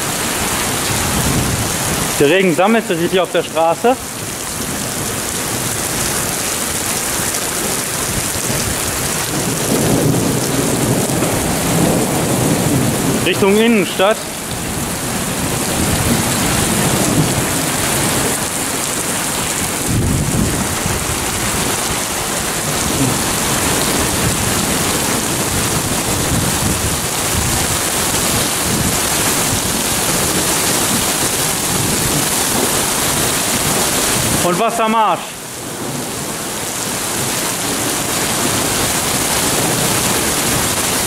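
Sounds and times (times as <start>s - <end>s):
heavy rain hissing on street: 0.0s - 41.0s
low thunder rumble: 0.6s - 2.2s, 7.8s - 34.4s.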